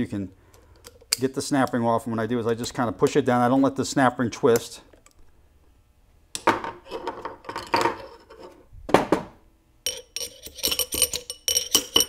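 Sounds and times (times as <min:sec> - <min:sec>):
snap ring clicking and scraping: 0:09.9 - 0:12.0.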